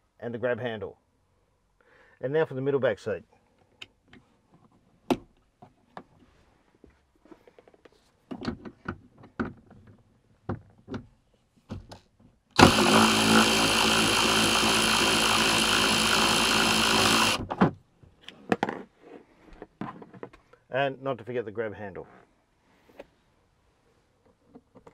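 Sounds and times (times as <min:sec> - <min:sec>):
cordless drill running: 0:12.6 - 0:17.5.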